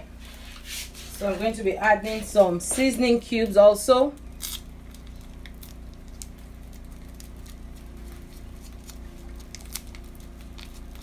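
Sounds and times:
steady low hum: 0.0s - 11.0s
foil crinkling: 4.2s - 11.0s.

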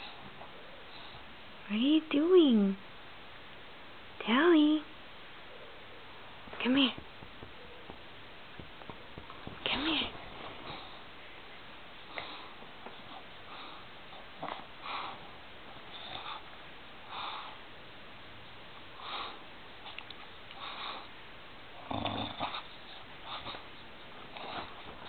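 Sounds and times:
dog sniffing: 22.3s - 25.0s.

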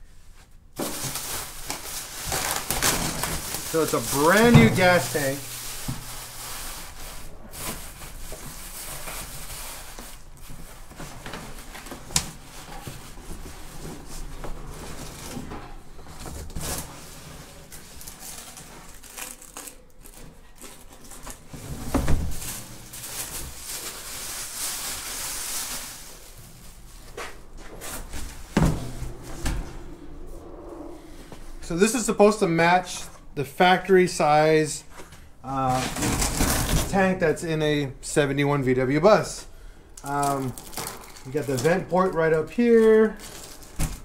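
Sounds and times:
plastic wrapping crinkling: 0.8s - 13.4s, 16.6s - 21.5s, 22.3s - 28.4s, 40.1s - 44.0s
cardboard flaps rustling and scraping: 0.8s - 29.8s, 35.7s - 37.0s.

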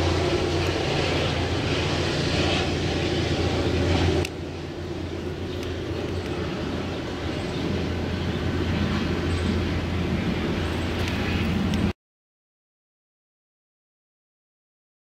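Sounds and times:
distant train rumbling: 0.0s - 11.9s.

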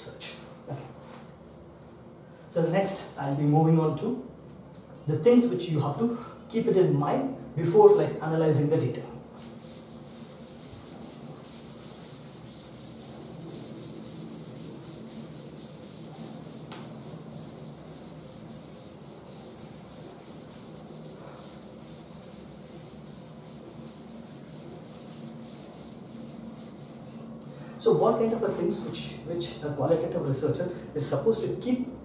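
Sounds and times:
duster rubbing a chalkboard: 9.2s - 27.4s.

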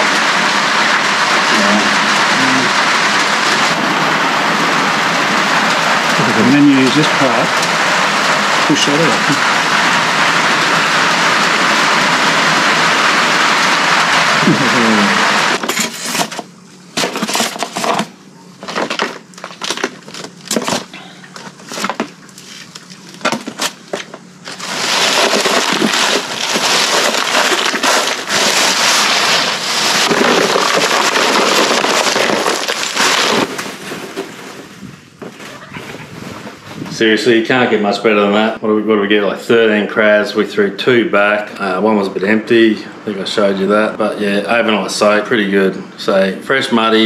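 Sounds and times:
running water hissing: 0.0s - 15.6s, 21.3s - 34.8s.

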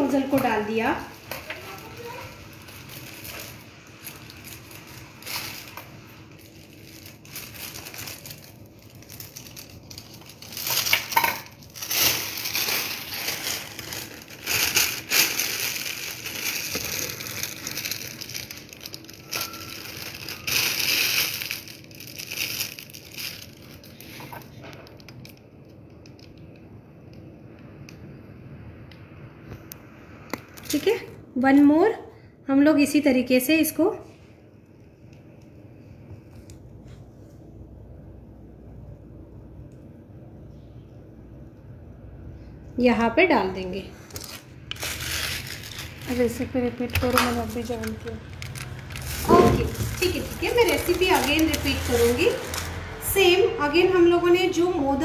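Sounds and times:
plastic bag crinkling: 0.0s - 26.6s, 30.5s - 31.1s, 43.6s - 53.4s.

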